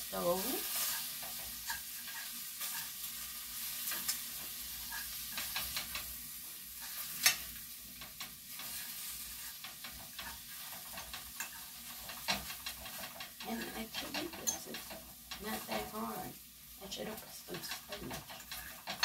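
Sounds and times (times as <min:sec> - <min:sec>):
egg and mushrooms sizzling: 0:00.0 - 0:19.0
utensil scraping and tapping pan: 0:00.8 - 0:06.2, 0:06.8 - 0:16.2, 0:17.0 - 0:19.0.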